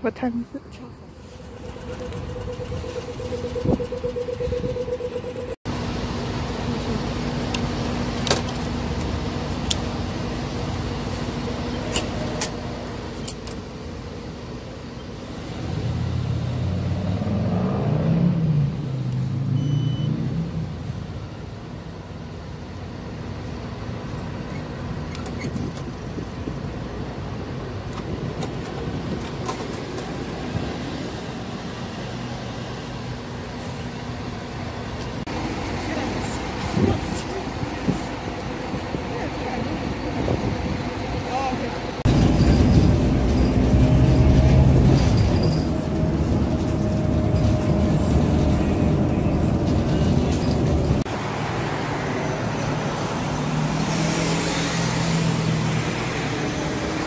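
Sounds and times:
street noise: 0.0s - 57.0s
vehicle engine passing by: 15.6s - 21.0s, 42.0s - 57.0s.

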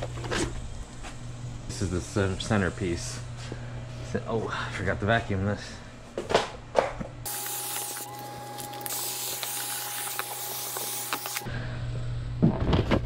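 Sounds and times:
vacuum cleaner whining: 7.3s - 11.5s.

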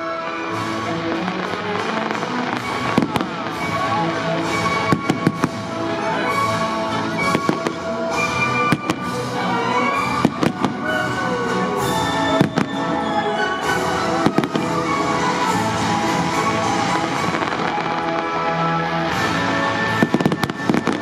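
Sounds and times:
music with long held notes: 0.0s - 21.0s.

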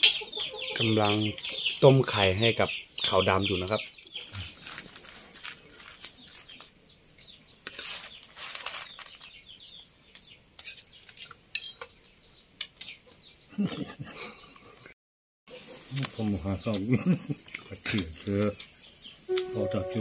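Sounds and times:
cutlery clinking on plates: 0.0s - 1.9s, 10.6s - 11.9s
steady high hiss: 15.9s - 20.0s.

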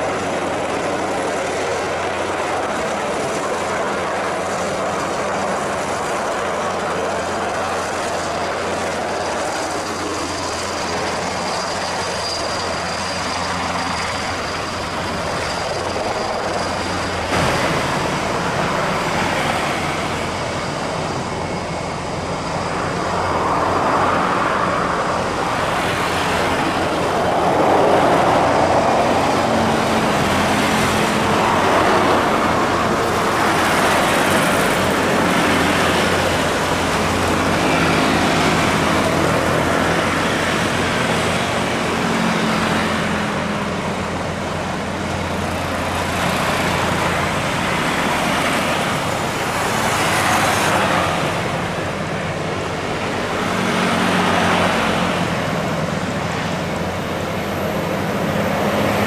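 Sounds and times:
helicopter rotor and engine noise: 0.0s - 59.0s
thin high whine: 9.2s - 42.0s.

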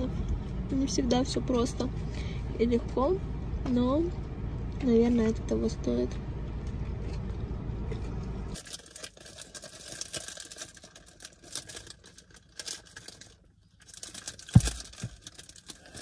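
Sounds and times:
low steady rumble: 0.0s - 16.0s
packaging crinkling and tearing: 8.5s - 16.0s.

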